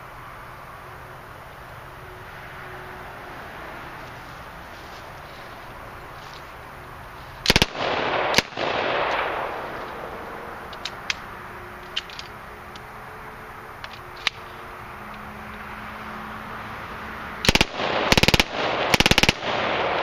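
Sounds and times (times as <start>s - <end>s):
rush of noise: 0.0s - 20.0s
gunshots burst: 7.5s - 9.6s, 17.5s - 20.0s.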